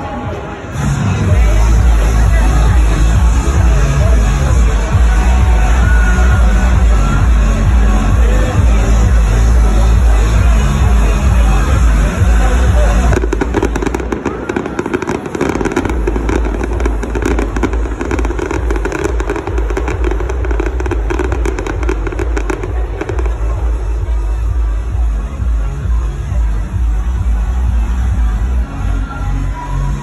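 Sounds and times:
crowd voices: 0:00.0 - 0:30.0
fireworks popping and crackling: 0:11.3 - 0:24.7.

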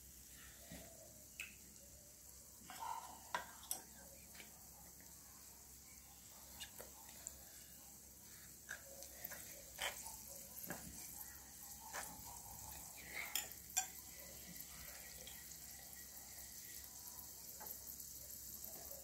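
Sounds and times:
food deep-frying in oil: 0:00.0 - 0:19.0
spoon clicks and scrapes: 0:08.6 - 0:14.1.

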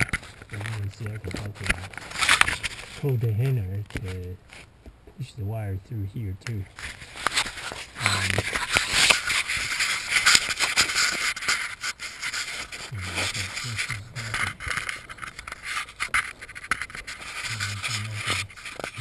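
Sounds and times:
wire scraping through carpet: 0:06.7 - 0:19.0.

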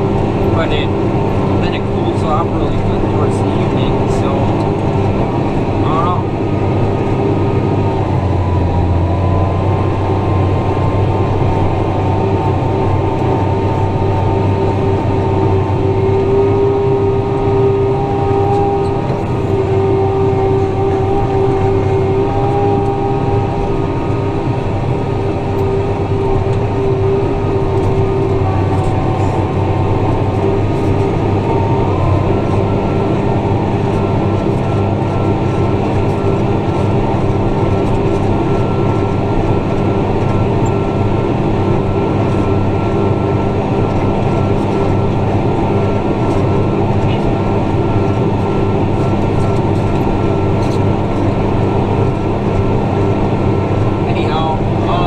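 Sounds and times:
tractor engine droning: 0:00.0 - 0:55.0.

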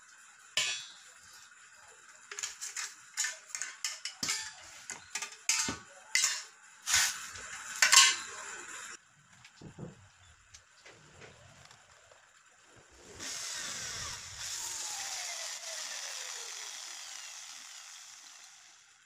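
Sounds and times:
aluminium tubes clinking: 0:00.6 - 0:01.1, 0:02.3 - 0:07.1, 0:07.7 - 0:08.4.

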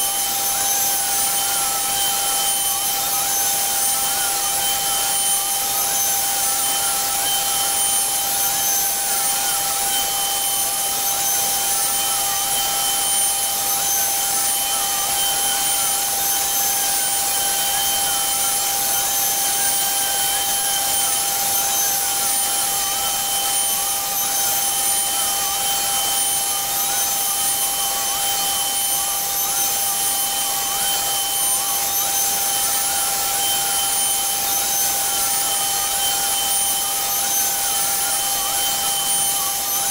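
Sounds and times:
bit carving into wood: 0:00.0 - 0:39.9
router spindle high whine: 0:00.0 - 0:39.9
fainter wavering tone: 0:00.1 - 0:39.9.

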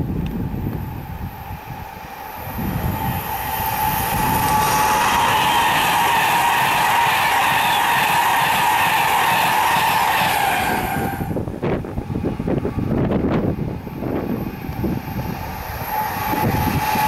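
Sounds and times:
wind rumble on microphone: 0:00.0 - 0:06.5, 0:10.6 - 0:17.0
train passing at speed: 0:00.0 - 0:17.0
high whine: 0:00.2 - 0:17.0.

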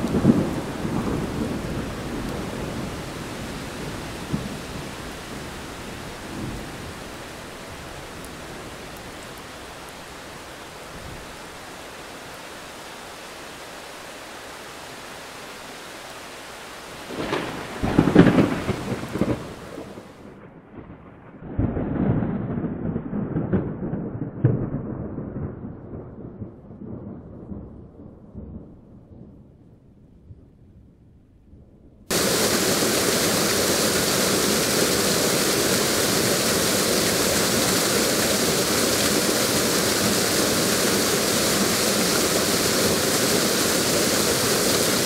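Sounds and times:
rumble of thunder: 0:00.0 - 0:05.6, 0:17.1 - 0:30.9
crackling thunder clap: 0:00.0 - 0:07.2, 0:17.1 - 0:29.4, 0:32.1 - 0:45.0
rain falling on foliage: 0:00.0 - 0:20.5, 0:32.1 - 0:45.0.

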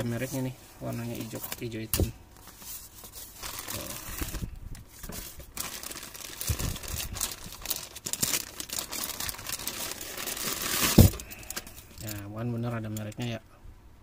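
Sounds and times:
plastic bag crinkling: 0:03.1 - 0:12.2.

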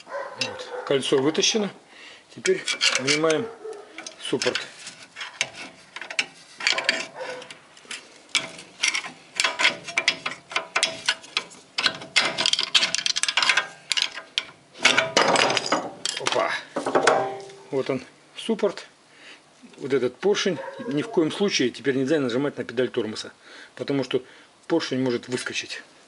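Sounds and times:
metal clicking and scraping: 0:02.4 - 0:17.6.

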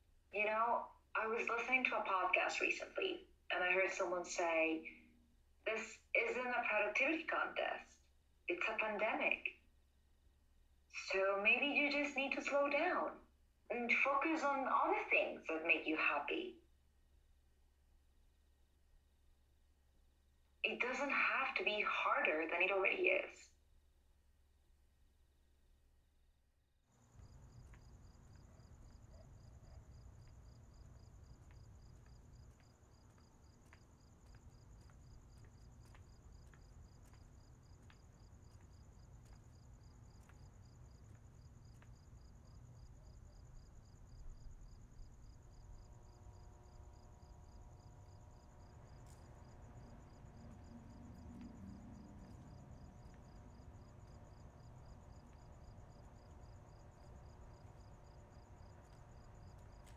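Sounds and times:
crickets chirping: 0:24.6 - 0:59.9
faint steady tones: 0:27.0 - 0:59.9
low steady rumble: 0:43.8 - 0:59.8.

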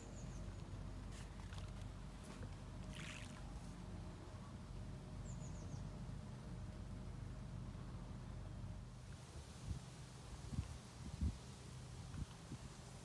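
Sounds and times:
low steady hum: 0:00.0 - 0:13.0
soft hiss: 0:07.5 - 0:13.0.

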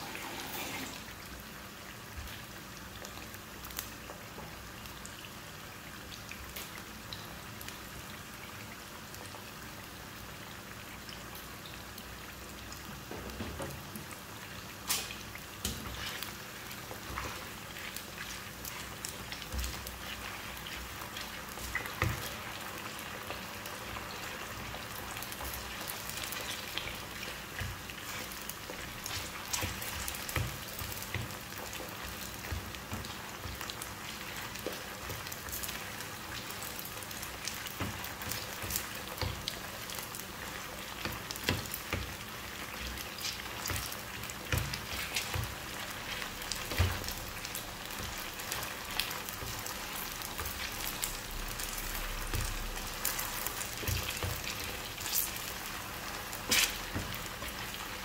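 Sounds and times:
chicken sizzling in oil: 0:00.0 - 0:58.0
spatula stirring in pan: 0:14.9 - 0:58.0.

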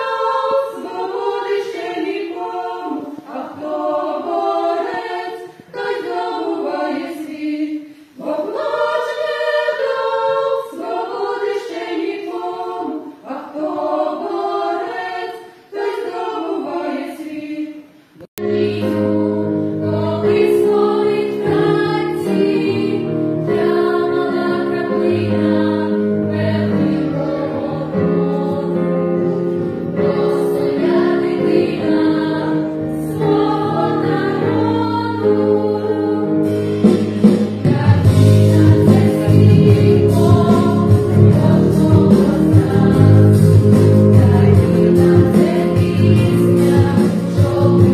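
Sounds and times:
children's choir singing: 0:00.0 - 0:47.9
women's vocal ensemble singing: 0:00.0 - 0:47.9
instrumental accompaniment: 0:18.4 - 0:47.9.

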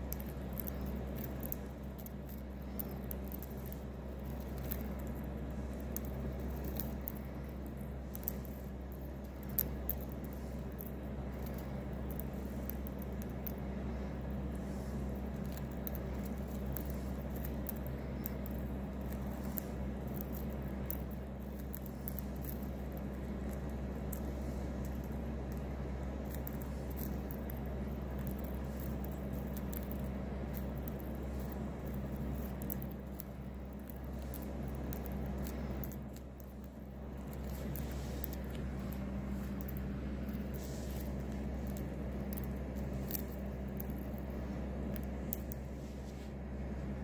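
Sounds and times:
bird beak cracking seeds: 0:00.0 - 0:45.7
steady low hum: 0:00.0 - 0:47.0.

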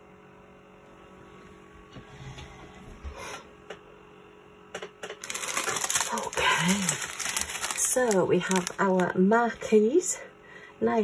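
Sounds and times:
plastic bags crinkling: 0:05.1 - 0:09.3.

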